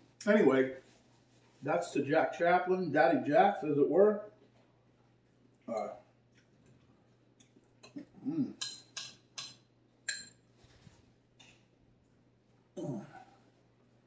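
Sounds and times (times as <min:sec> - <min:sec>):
spoon clinking in a ramekin: 0:08.6 - 0:10.4.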